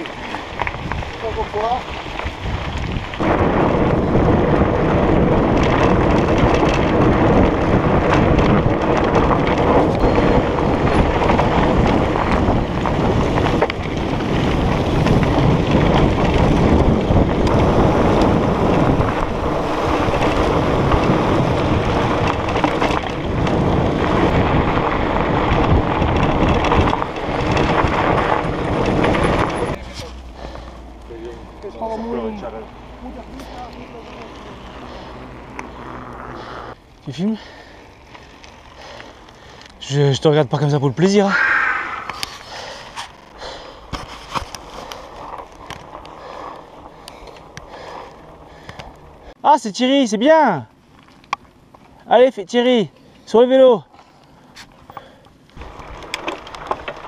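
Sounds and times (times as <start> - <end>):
wind buffeting microphone: 0.0 - 29.8, 41.2 - 49.4
bike tyres rumbling on gravel: 0.0 - 57.0.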